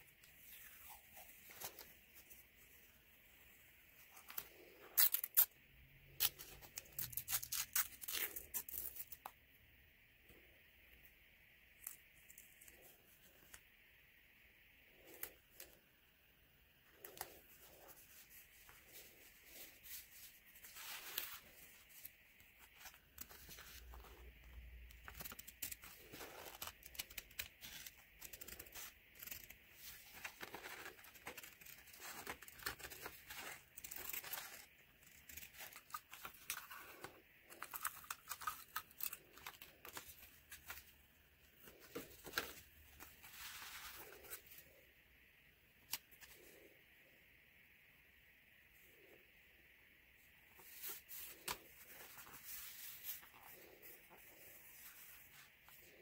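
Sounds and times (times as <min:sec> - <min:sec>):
faint steady hiss: 0:00.0 - 0:56.0
paper and tape rustling: 0:17.0 - 0:41.0.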